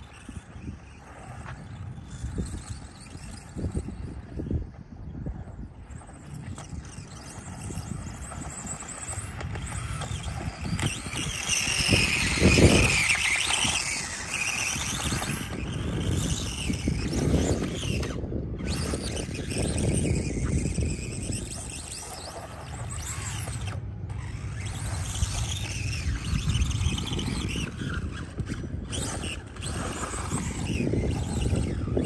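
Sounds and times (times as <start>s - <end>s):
electric motor whining: 0.0s - 32.0s
wind rumble on microphone: 0.0s - 32.0s.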